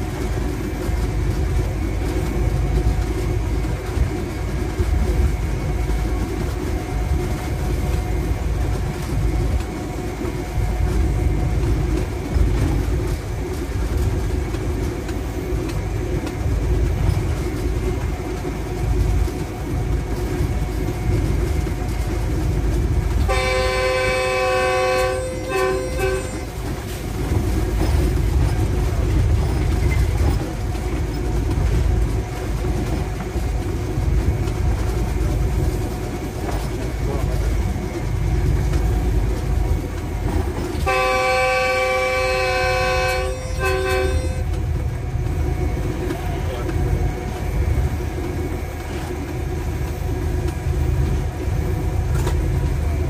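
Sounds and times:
locomotive engine rumble: 0:00.0 - 0:53.0
wheels on track: 0:00.0 - 0:53.0
locomotive horn blast: 0:23.2 - 0:26.6, 0:40.8 - 0:44.6.

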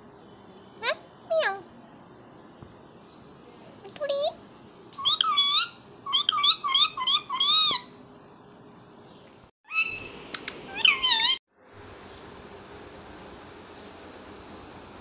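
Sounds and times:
parakeet squawks: 0:05.0 - 0:07.9, 0:09.7 - 0:11.4.

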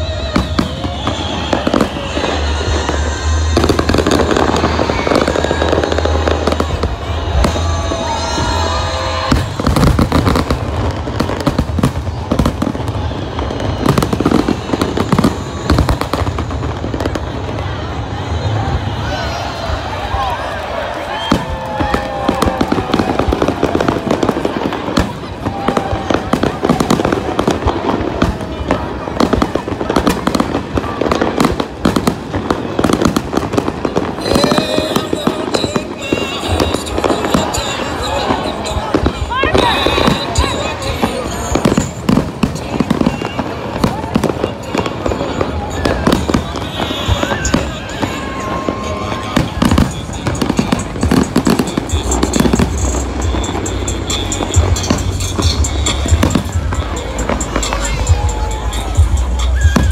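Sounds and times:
fireworks bangs and crackles: 0:00.0 - 0:59.9.

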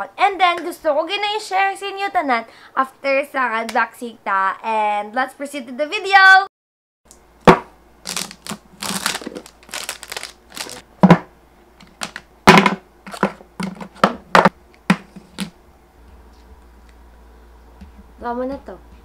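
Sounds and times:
plastic shrink-wrap crinkling: 0:08.0 - 0:10.8.

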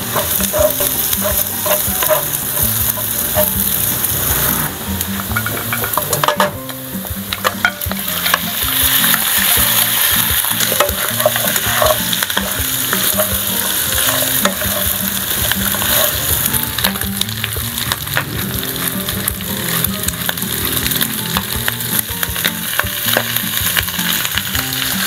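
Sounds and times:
meat sizzling in hot oil: 0:00.0 - 0:25.0.

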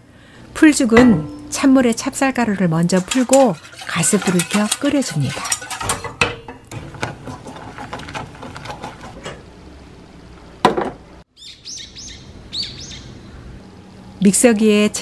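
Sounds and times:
pot knocking down: 0:00.9 - 0:09.1
wooden spoon scraping metal saucepan: 0:01.1 - 0:09.3
small birds chirping: 0:11.3 - 0:13.6.

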